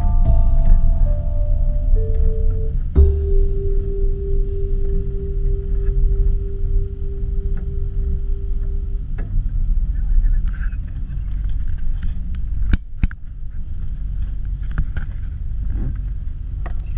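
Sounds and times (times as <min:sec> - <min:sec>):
held tone: 0:00.0 - 0:10.0
boat motor rumble: 0:00.0 - 0:12.4.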